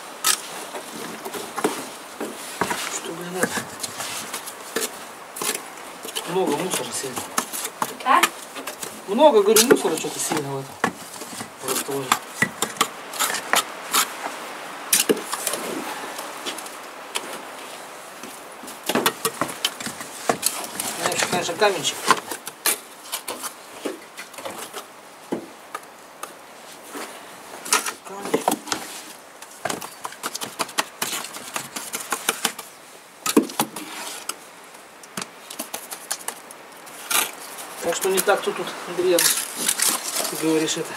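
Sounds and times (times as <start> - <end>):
trowel scraping and tapping mortar: 2.6 - 14.1, 18.8 - 23.5, 29.6 - 32.7, 35.0 - 36.4.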